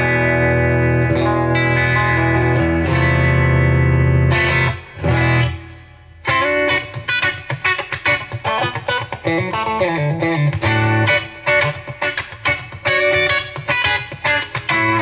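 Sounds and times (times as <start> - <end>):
electric guitar chords: 0.0 - 15.0
electric guitar picked notes: 0.0 - 15.0.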